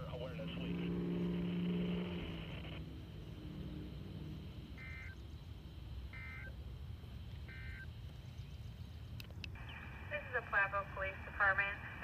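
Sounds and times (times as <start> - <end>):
radio dispatch broadcast: 0.0 - 2.8, 9.6 - 12.0
low background rumble: 0.0 - 12.0
electronic alert beeps: 4.8 - 5.2, 6.2 - 6.5, 7.5 - 7.9.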